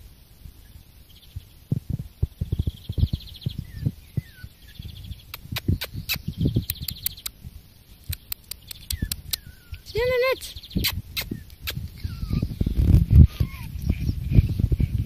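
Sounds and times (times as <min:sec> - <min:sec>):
small birds chirping: 0:00.0 - 0:15.0
dull low thumps: 0:01.3 - 0:06.8, 0:10.7 - 0:15.0
sharp clicks: 0:05.3 - 0:07.4, 0:08.0 - 0:09.5.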